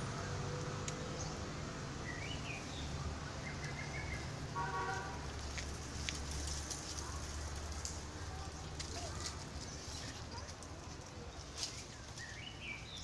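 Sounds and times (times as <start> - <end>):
bird chirps: 2.0 - 4.4.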